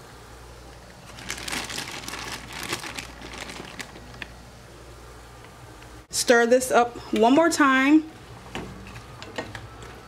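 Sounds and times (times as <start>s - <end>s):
plastic bag crinkling: 1.0s - 4.4s.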